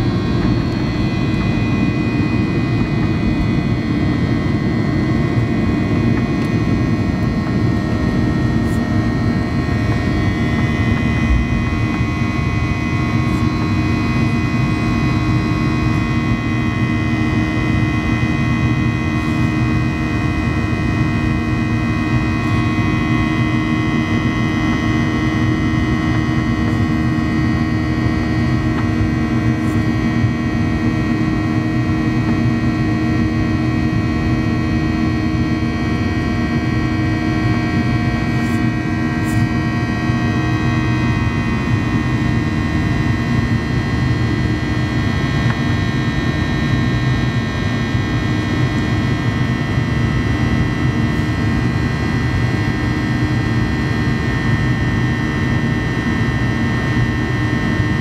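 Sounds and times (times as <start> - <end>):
jet engines rushing: 0.0 - 16.4
steady humming tones: 0.0 - 58.0.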